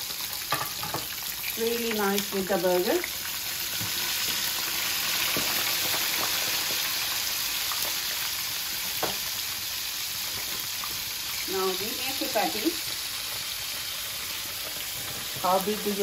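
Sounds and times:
chips sizzling in hot oil: 0.0 - 16.0.

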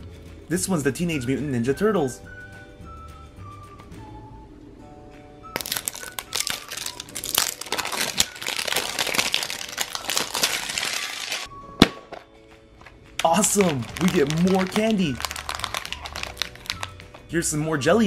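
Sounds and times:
soft background music: 0.0 - 18.0
plastic wrapping crinkling: 5.6 - 11.5, 13.2 - 17.3
plastic egg snapping open: 5.6 - 12.3, 13.2 - 17.2.

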